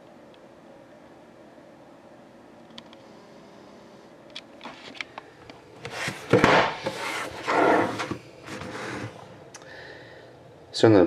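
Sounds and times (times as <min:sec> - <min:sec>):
cardboard box rustling and scraping: 0:05.9 - 0:09.2.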